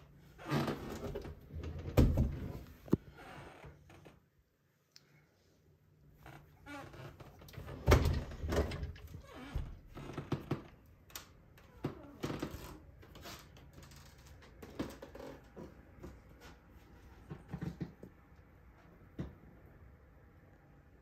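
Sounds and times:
closet door shutting with thud: 7.6 - 9.8.

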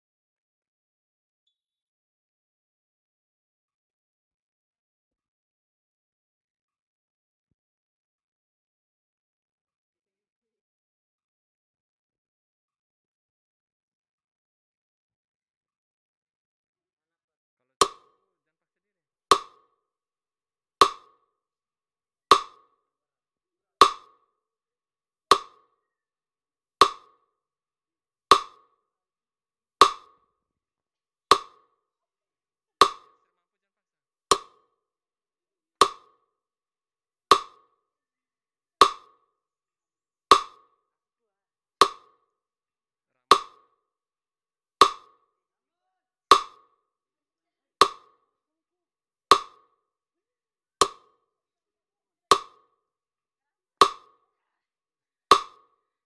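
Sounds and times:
metronome ticking: 19.3 - 19.6, 22.3 - 22.6, 23.8 - 24.2, 25.3 - 25.6, 26.8 - 27.2, 28.3 - 28.6, 31.3 - 31.6, 32.8 - 33.2, 35.8 - 36.2, 37.3 - 37.6, 38.8 - 39.2, 40.3 - 40.6, 41.8 - 42.1, 43.3 - 43.6, 46.3 - 46.6, 47.8 - 48.1, 49.3 - 49.6, 50.8 - 51.1, 52.3 - 52.6, 55.3 - 55.6.

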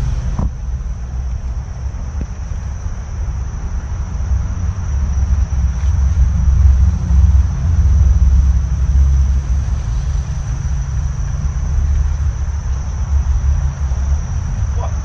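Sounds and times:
high hum of insects: 0.0 - 15.0
low rumble of traffic on bridge: 0.0 - 15.0.

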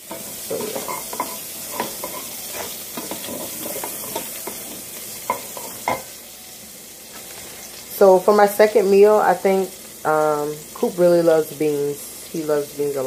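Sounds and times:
utensil scraping pot: 0.0 - 6.1
sausage sizzling in fat: 0.0 - 13.0.

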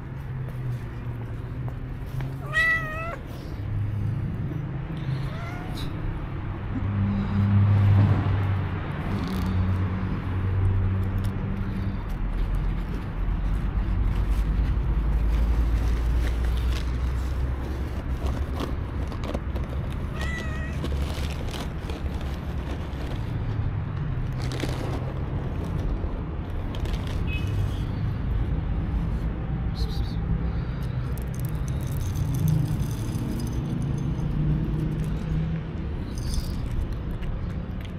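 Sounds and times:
cat meowing: 2.4 - 3.3, 5.0 - 6.0, 20.1 - 20.8.

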